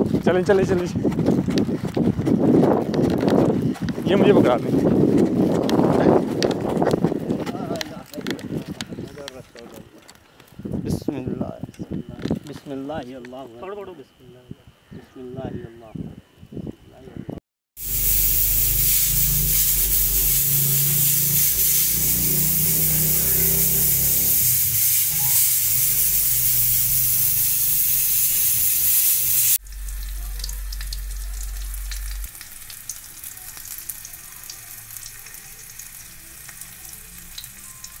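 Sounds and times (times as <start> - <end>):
oil crackles and pops: 5.2 - 10.6, 24.2 - 38.0
frying in oil sizzle: 17.8 - 38.0.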